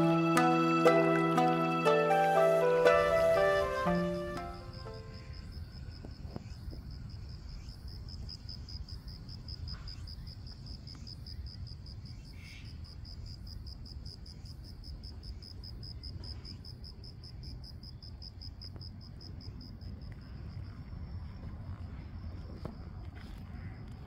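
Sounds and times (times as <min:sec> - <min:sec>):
insect chirping: 0:02.4 - 0:22.9.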